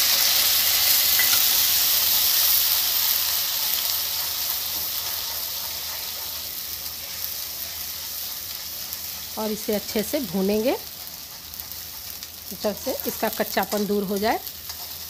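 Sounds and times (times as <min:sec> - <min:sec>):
onion paste sizzling in oil: 0:00.0 - 0:15.0.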